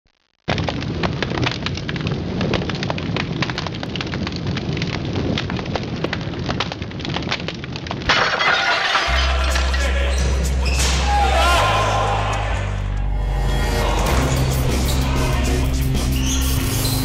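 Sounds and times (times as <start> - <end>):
fire pops and crackles: 0.1 - 11.2
fire rushing rumble: 0.5 - 16.9.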